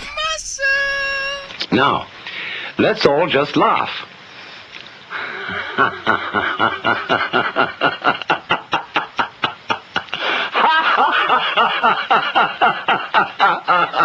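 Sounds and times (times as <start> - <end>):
man laughing: 5.2 - 14.0.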